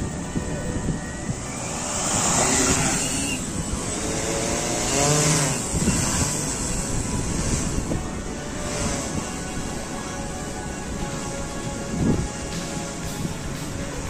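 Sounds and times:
drone propellers whirring: 0:00.0 - 0:14.0.

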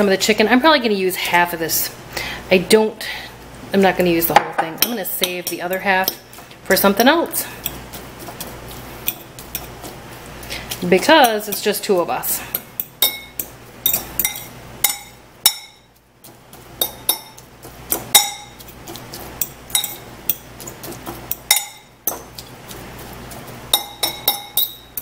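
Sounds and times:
fork scraping ceramic bowl: 0:07.4 - 0:11.8, 0:16.2 - 0:25.0.

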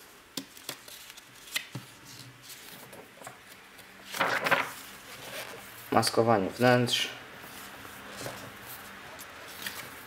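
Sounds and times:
page turning rustle: 0:00.4 - 0:05.7, 0:07.5 - 0:10.0.

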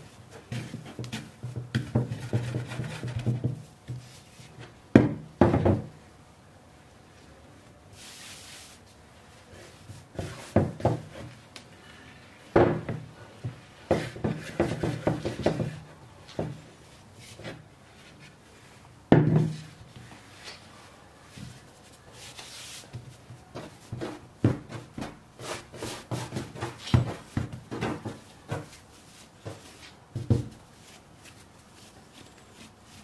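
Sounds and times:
dough knocking against wood: 0:00.5 - 0:04.0.

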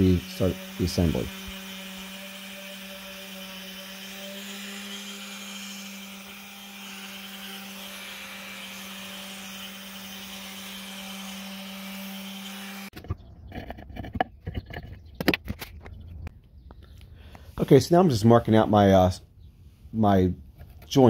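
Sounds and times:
orbital sander running: 0:00.0 - 0:13.0.

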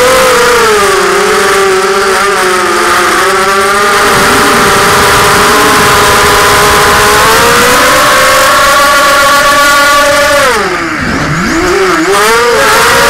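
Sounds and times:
drone motors whining: 0:02.6 - 0:13.0
rushing wind: 0:03.8 - 0:08.8.

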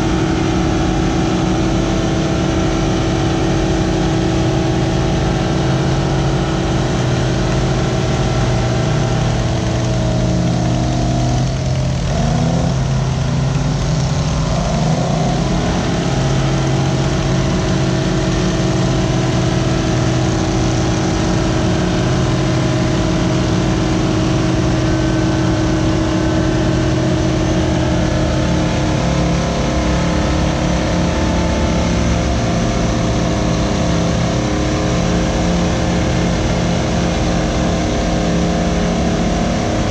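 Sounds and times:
bulldozer diesel engines under load: 0:00.0 - 0:39.9.

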